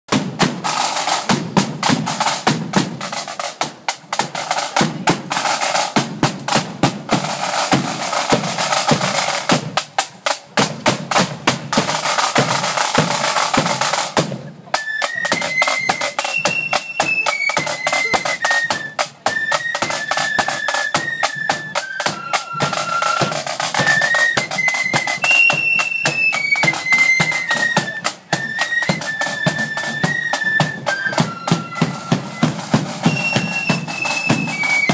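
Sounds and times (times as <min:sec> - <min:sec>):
snare drums and bass drum march: 0:00.1 - 0:34.9
flutes playing high melody: 0:14.6 - 0:34.9.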